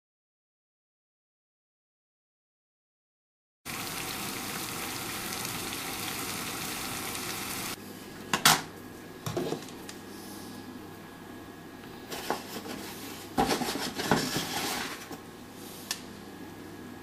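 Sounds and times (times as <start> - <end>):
water boiling in a saucepan: 3.7 - 7.8.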